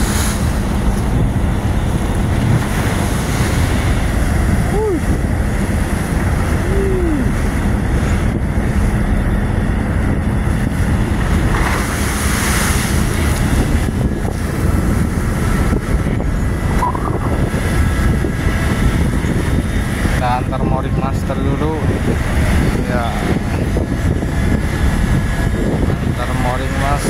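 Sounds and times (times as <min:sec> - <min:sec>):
sea slapping against hulls: 0:00.0 - 0:20.6
boat engine humming: 0:00.0 - 0:27.0
wave splashing: 0:00.0 - 0:27.0
wind buffeting the microphone: 0:00.0 - 0:27.0.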